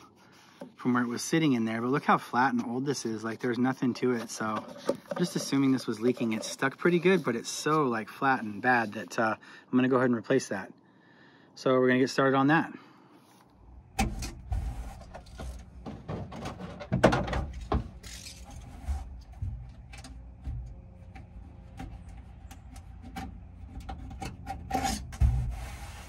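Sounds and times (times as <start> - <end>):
weather stripping scraping and tearing: 4.0 - 9.0, 14.1 - 15.8, 17.5 - 26.0.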